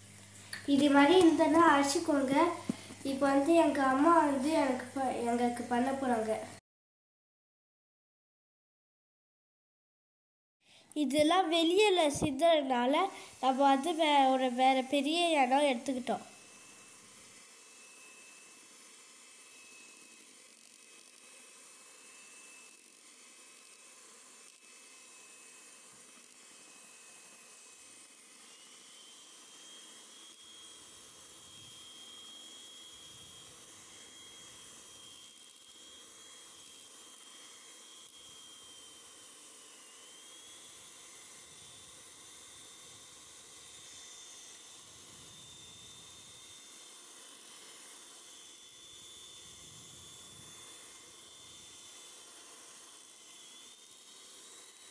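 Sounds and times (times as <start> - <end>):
hand mixer motor whining: 0.0 - 6.6, 10.8 - 54.9.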